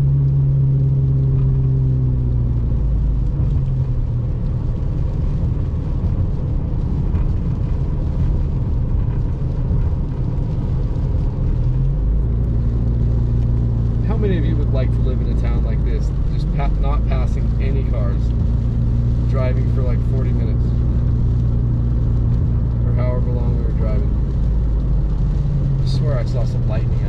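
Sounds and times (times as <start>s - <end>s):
car engine and tyre hum: 0.0s - 27.0s.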